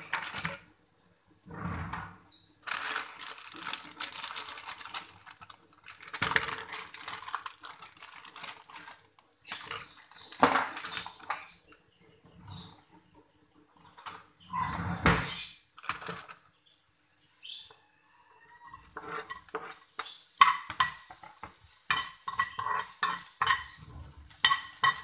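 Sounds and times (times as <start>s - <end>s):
oil sizzling in frying pan: 16.8s - 25.0s.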